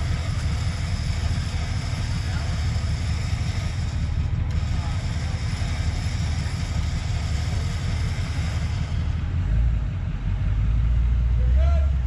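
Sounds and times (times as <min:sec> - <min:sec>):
truck engine rumbling: 0:00.0 - 0:12.0.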